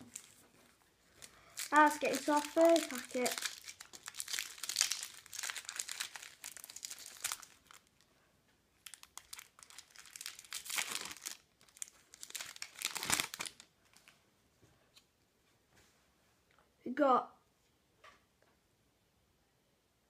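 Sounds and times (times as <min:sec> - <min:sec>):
foil card packet crinkling and tearing: 0:00.0 - 0:00.4, 0:01.1 - 0:08.0, 0:08.8 - 0:14.1.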